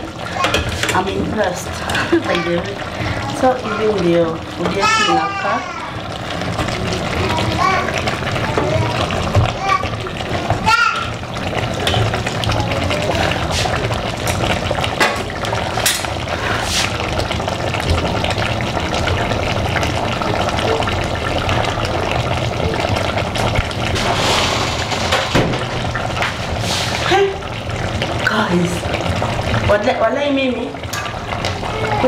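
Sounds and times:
stew bubbling: 0.0 - 32.0.

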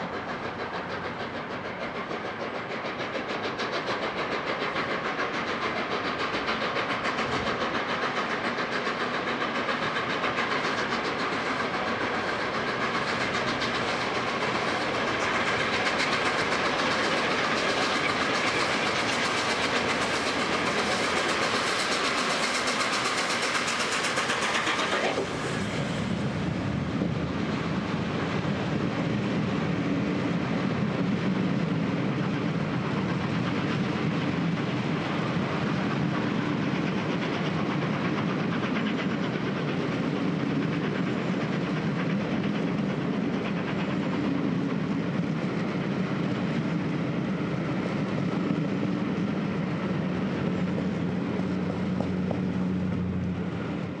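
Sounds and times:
train wheels clattering on rails: 0.0 - 54.0
steam hissing burst: 0.9 - 27.0.

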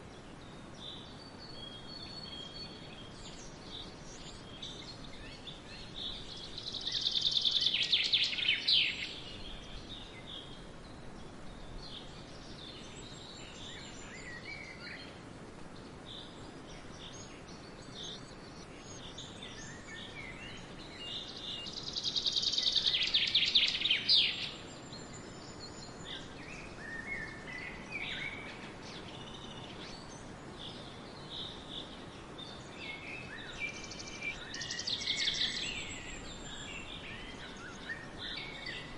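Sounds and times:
wind hiss: 0.0 - 38.9
swallows twittering: 16.2 - 38.9.

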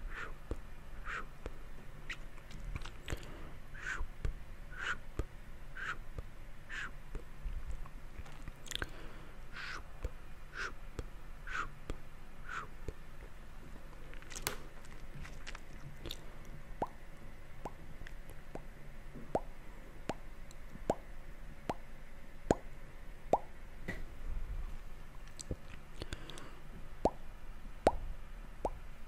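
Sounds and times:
wet mouth clicks: 0.1 - 6.0, 6.7 - 8.9, 9.6 - 13.0, 14.1 - 17.0, 25.2 - 27.2
lip pops: 0.5 - 6.0, 6.7 - 8.9, 14.1 - 17.0, 25.3 - 27.2.

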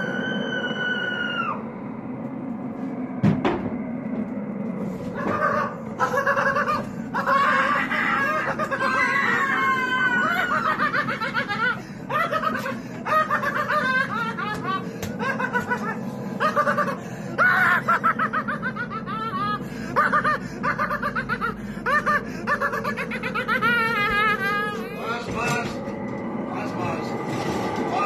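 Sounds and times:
people laughing: 5.2 - 25.4.

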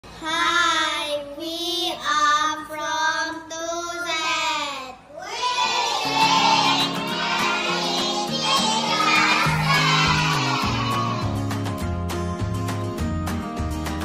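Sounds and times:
high solo singing voice: 6.0 - 11.4
backing music: 6.0 - 14.0.

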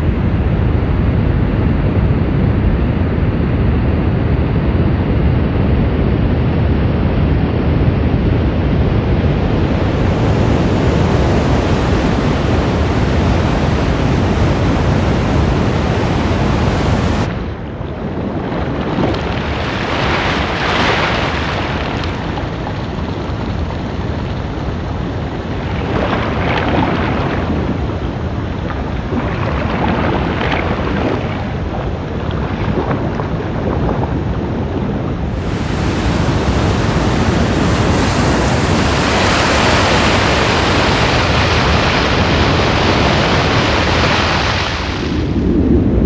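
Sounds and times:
rush of surf and spray: 5.0 - 46.0
water sloshing and splashing: 18.2 - 34.1, 35.3 - 45.2.

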